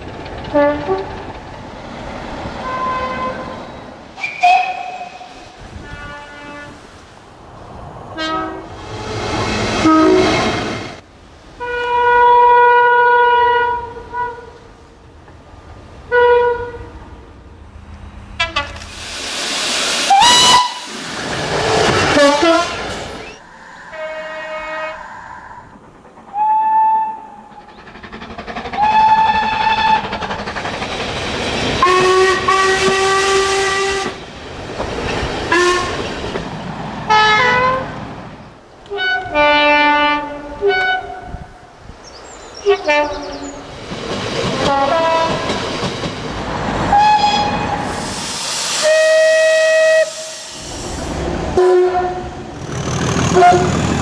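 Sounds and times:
passing trains running noise: 0:00.0 - 0:54.0
diesel train horn blasts: 0:00.5 - 0:01.1, 0:02.6 - 0:03.6, 0:04.2 - 0:06.8, 0:08.2 - 0:08.8, 0:09.8 - 0:10.6, 0:11.6 - 0:14.7, 0:16.1 - 0:17.0, 0:18.4 - 0:18.8, 0:20.1 - 0:20.9, 0:22.1 - 0:22.8, 0:23.9 - 0:25.4, 0:31.8 - 0:34.2, 0:35.5 - 0:36.0, 0:37.1 - 0:37.9, 0:38.9 - 0:41.4, 0:44.6 - 0:45.5, 0:46.9 - 0:47.7, 0:48.8 - 0:50.7, 0:51.6 - 0:52.5, 0:53.2 - 0:54.0.

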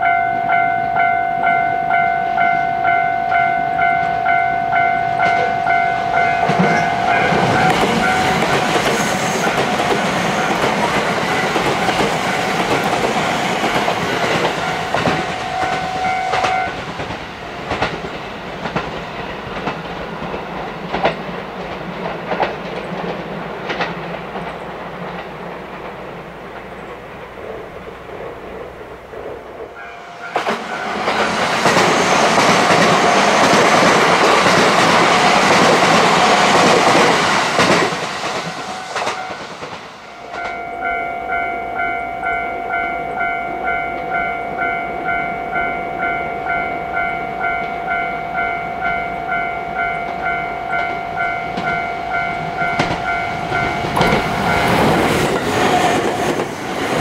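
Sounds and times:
railway crossing bell ringing: 0:00.0 - 0:18.2, 0:29.7 - 0:56.4
rail joint clacks: 0:00.0 - 0:57.0
electric train running: 0:00.5 - 0:57.0.

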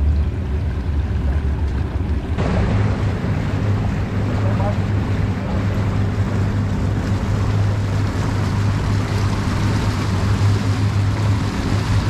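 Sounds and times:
outboard engines droning: 0:00.0 - 0:12.0
water rushing in wake: 0:00.0 - 0:12.0
wind: 0:00.0 - 0:12.0.

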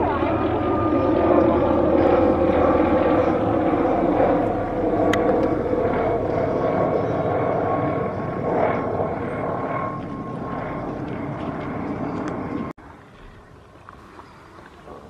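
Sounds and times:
helicopter flying overhead: 0:00.0 - 0:15.0.

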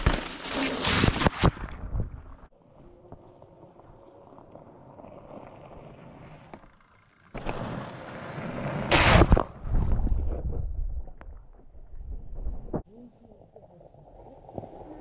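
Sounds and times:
bike tyres on gravel: 0:00.0 - 0:10.2.

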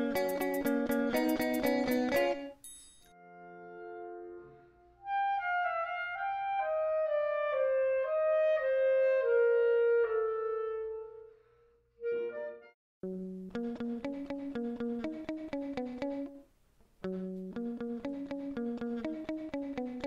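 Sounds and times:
clarinet melody: 0:03.2 - 0:11.4, 0:12.0 - 0:13.4.

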